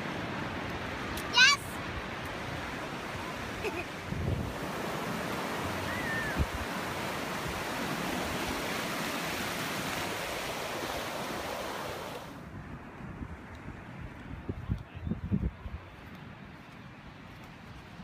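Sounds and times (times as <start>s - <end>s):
ocean surf breaking: 0.0s - 12.4s.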